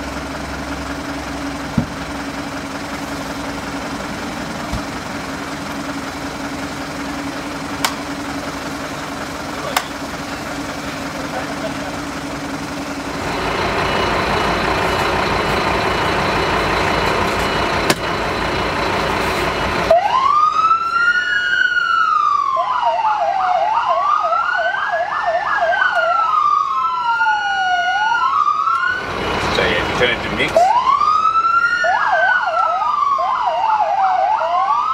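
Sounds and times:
fire truck siren wailing: 0.0s - 34.9s
fast siren yelp: 19.9s - 29.0s, 30.6s - 34.9s.

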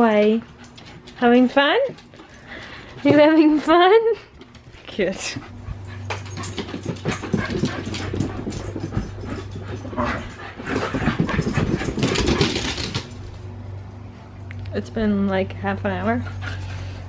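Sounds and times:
steady low hum: 0.0s - 17.0s
dog claws scrabbling on wood: 6.1s - 13.2s.

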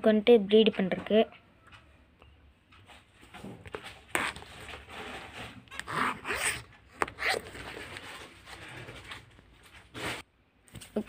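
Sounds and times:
rasping scrapes and rustles: 3.3s - 10.3s.

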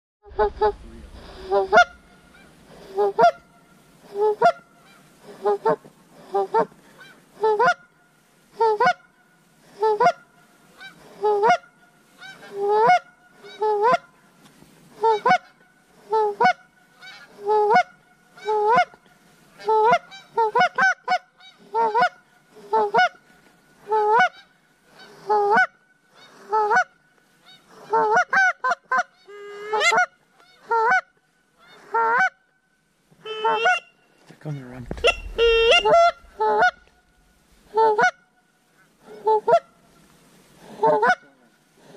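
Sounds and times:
geese honking: 0.3s - 7.8s, 23.9s - 31.0s, 33.2s - 38.2s.

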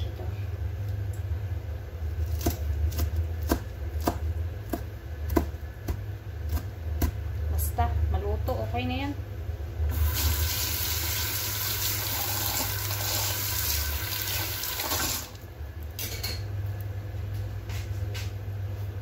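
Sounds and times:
tap water running: 9.9s - 15.4s.

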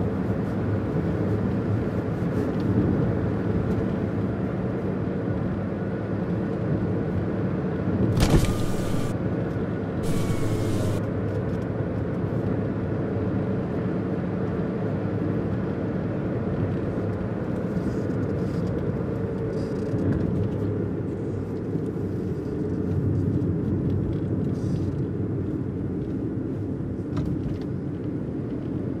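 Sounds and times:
car road and engine rumble: 8.1s - 9.2s, 10.0s - 11.0s.

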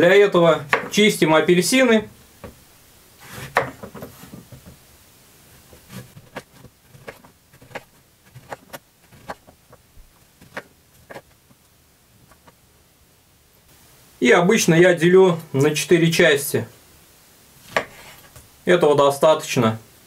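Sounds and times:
knife tapping on wooden board: 0.7s - 0.9s.

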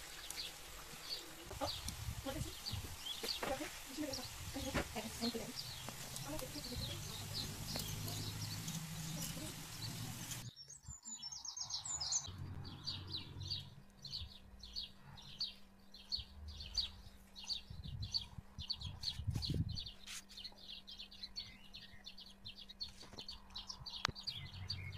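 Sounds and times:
bird chirping: 0.0s - 24.9s.

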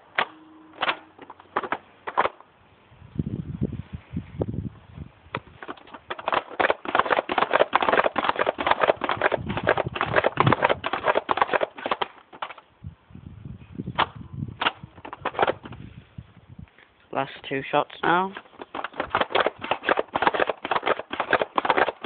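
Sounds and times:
sharp plastic clicks: 0.0s - 2.4s, 5.3s - 12.6s, 14.0s - 15.8s, 18.3s - 22.0s
toy blaster pumping clatter: 0.2s - 2.4s, 5.4s - 12.6s, 14.6s - 15.8s, 18.4s - 22.0s.

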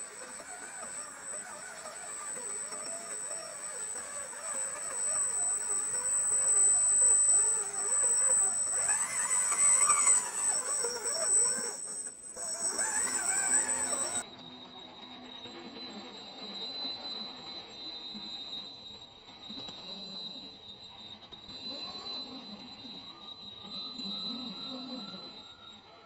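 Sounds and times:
electric motor whining: 0.0s - 14.2s
steady high tone: 0.0s - 14.2s.

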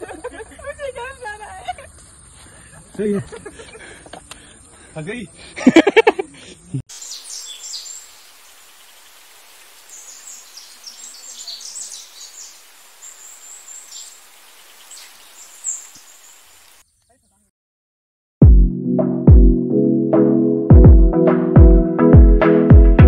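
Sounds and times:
birds chirping: 0.0s - 17.5s
steady hiss: 6.9s - 16.8s.

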